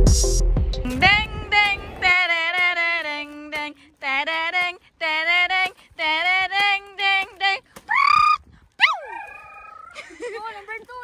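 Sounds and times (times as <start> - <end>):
high solo voice singing: 0.9 - 7.6.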